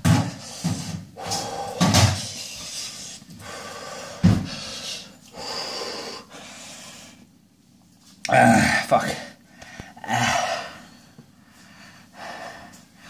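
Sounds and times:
man breathing hard through mouth: 0.2 - 7.3, 9.4 - 13.0.

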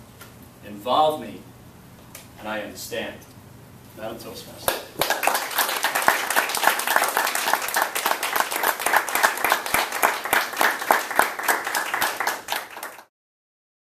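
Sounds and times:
audience applauding: 4.7 - 13.1.

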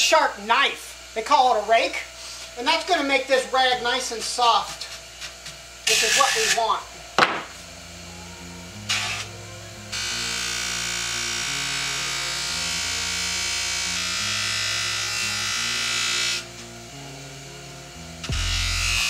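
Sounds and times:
polishing wheel buffing hiss: 1.6 - 6.9, 7.5 - 19.0
background music with bass line: 7.6 - 19.0.

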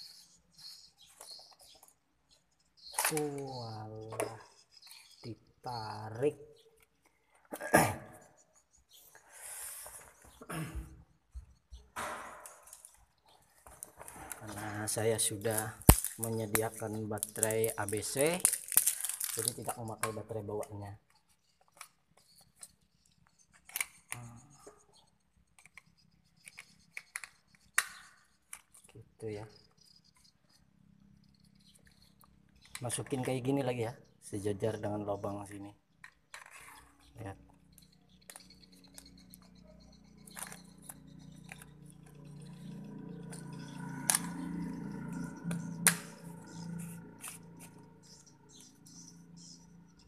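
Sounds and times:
batteries clicking and rattling: 12.4 - 20.8, 21.5 - 30.2, 36.0 - 48.6.

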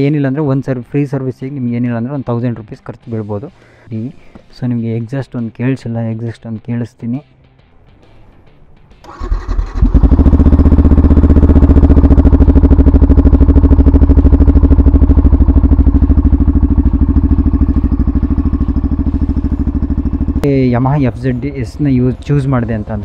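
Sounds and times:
motorcycle engine starting and idling: 8.9 - 23.0.

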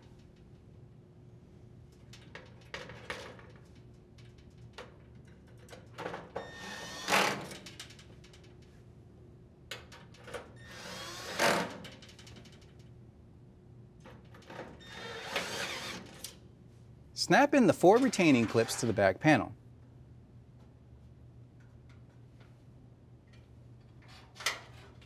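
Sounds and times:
cordless drill motor running: 14.9 - 16.1.

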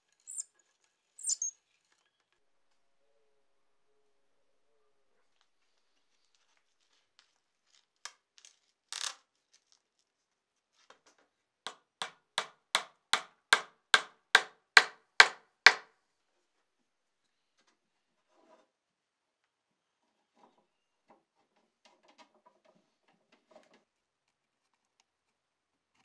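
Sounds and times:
hammer striking wooden handle: 12.0 - 15.8.

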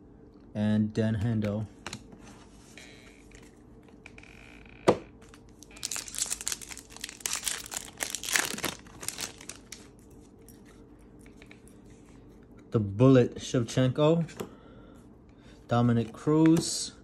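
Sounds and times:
foil wrapper tearing and crinkling: 5.5 - 9.9.

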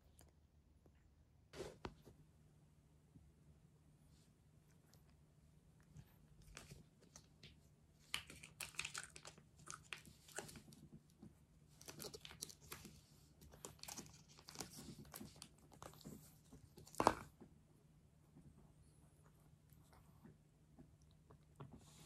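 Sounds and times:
plastic wrapper crinkling: 8.1 - 10.8, 11.8 - 13.0.

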